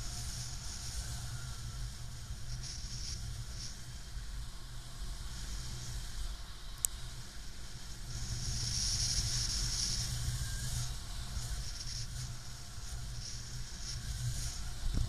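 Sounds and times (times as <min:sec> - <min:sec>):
wind buffeting microphone: 0:13.4 - 0:15.0.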